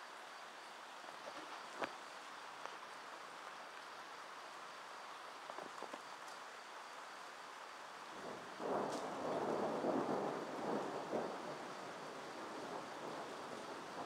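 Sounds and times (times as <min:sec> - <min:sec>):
rain hiss: 0:00.0 - 0:14.0
thunder rumbling: 0:08.2 - 0:14.0.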